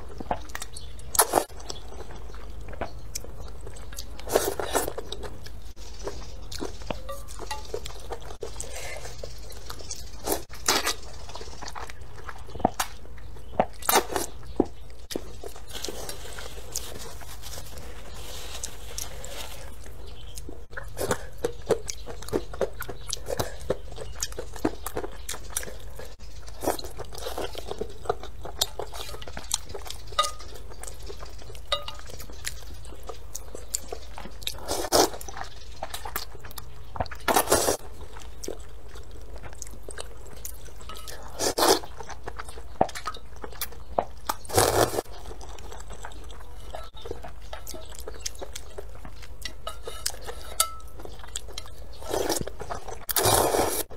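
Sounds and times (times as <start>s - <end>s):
wet chewing: 0.0s - 53.9s
slurping noodles: 44.5s - 45.1s, 53.1s - 53.9s.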